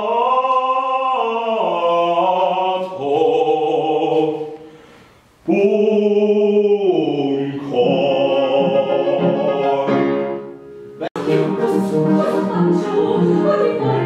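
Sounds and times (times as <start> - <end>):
man singing opera: 0.0 - 4.7, 5.4 - 10.3.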